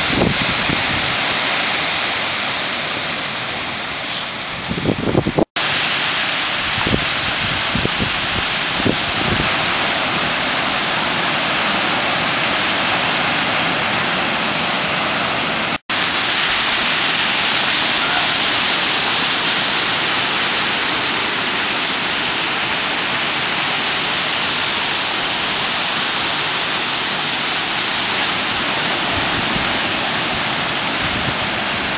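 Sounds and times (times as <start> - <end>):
ocean surf breaking on beach: 0.0 - 31.9.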